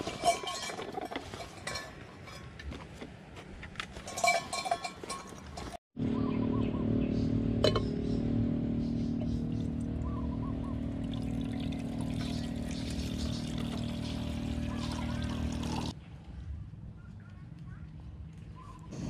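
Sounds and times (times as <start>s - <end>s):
camping gear rustling and clinking: 0.0s - 5.8s.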